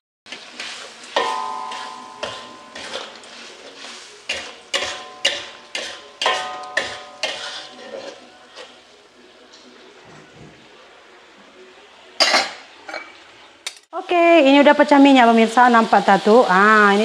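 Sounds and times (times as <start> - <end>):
faint sizzle: 0.3 - 17.0
spatula clanking against a wok: 0.4 - 8.8.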